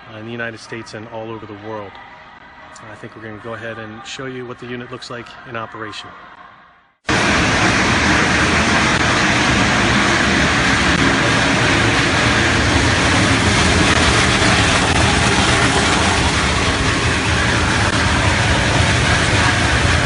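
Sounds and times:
foam crusher machine running: 7.1s - 20.0s
low machine hum: 7.1s - 20.0s.

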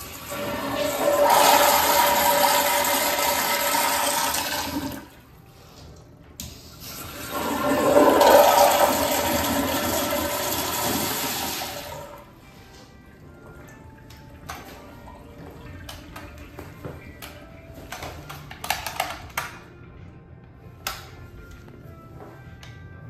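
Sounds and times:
toilet flushing: 0.0s - 5.3s, 6.6s - 12.4s.

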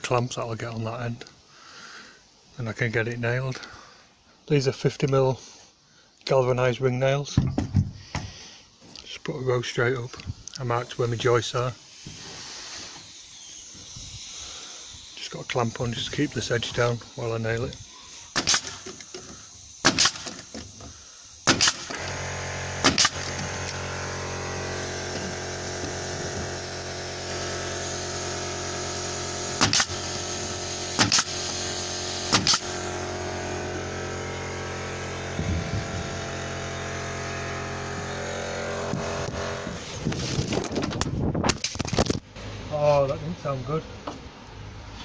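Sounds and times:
nails hammered into timber: 18.4s - 20.7s, 21.4s - 22.0s, 22.8s - 23.5s, 29.6s - 30.1s, 31.0s - 31.4s, 32.3s - 32.7s
steady machine hum: 20.9s - 40.8s.

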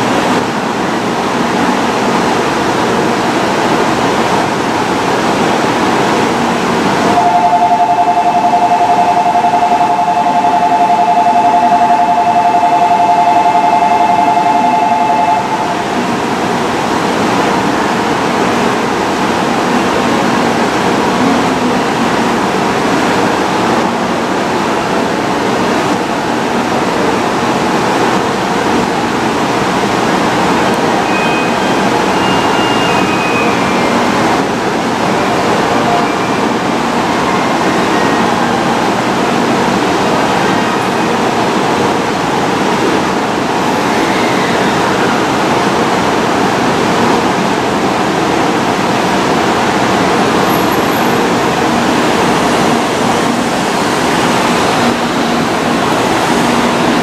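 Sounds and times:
two-note electronic tone: 7.1s - 16.2s, 30.8s - 34.2s
train equipment hiss and hum: 13.2s - 57.0s.

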